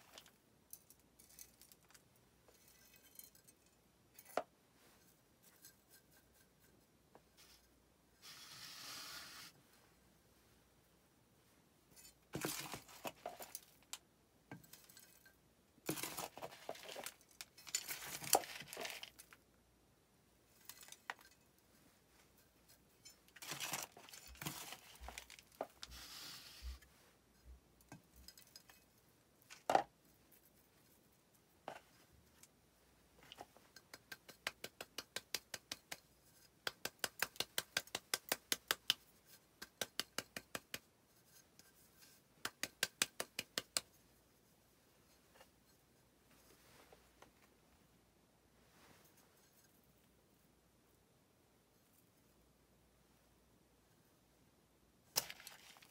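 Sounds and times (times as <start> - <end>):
trowel scraping potting mix: 8.2 - 9.6, 15.8 - 19.1, 23.4 - 26.8.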